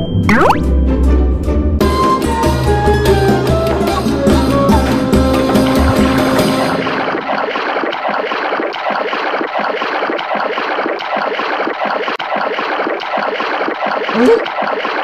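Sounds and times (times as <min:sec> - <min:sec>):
water splashing and churning: 0:03.2 - 0:15.0.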